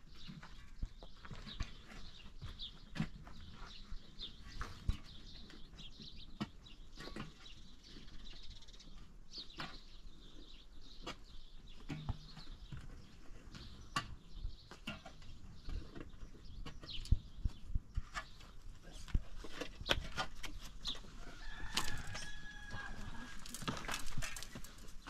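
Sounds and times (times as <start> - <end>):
faint farmyard animal calls: 21.0 - 23.8.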